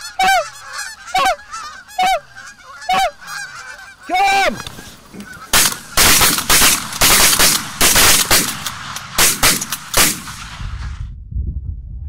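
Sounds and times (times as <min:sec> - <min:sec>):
low rumble: 0:10.2 - 0:12.0.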